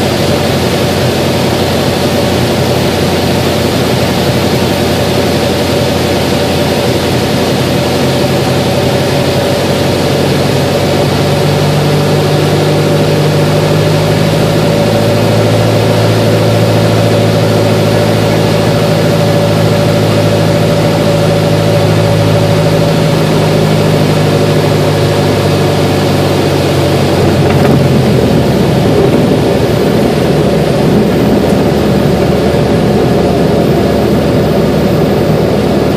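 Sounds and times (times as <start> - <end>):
airflow noise: 0.0 - 35.9
airplane engine and propeller: 0.0 - 35.9.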